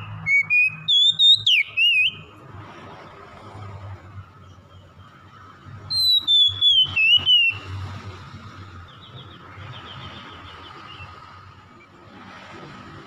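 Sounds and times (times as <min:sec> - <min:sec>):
bird singing whistled phrase: 0:00.0 - 0:02.3, 0:05.9 - 0:07.7.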